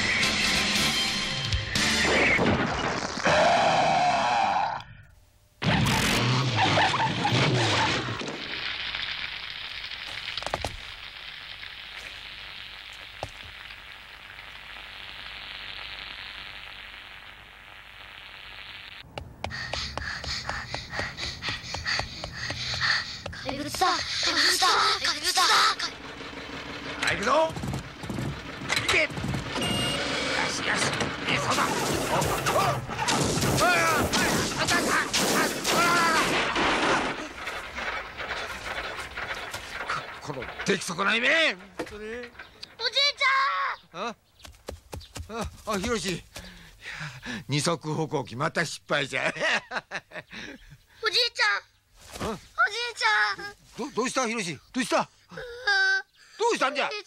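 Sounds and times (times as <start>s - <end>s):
music: 0.0s - 2.2s
sizzling hiss: 6.8s - 28.7s
running footsteps: 19.0s - 24.6s, 27.5s - 29.6s, 44.4s - 46.7s
machine crashing and smashing: 25.6s - 42.6s.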